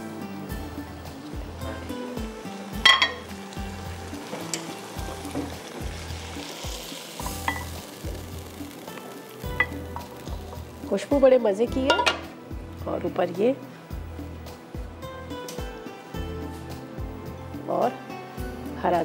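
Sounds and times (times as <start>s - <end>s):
food sizzling: 0.0s - 16.6s
spoon scraping a hot pan: 4.3s - 8.0s.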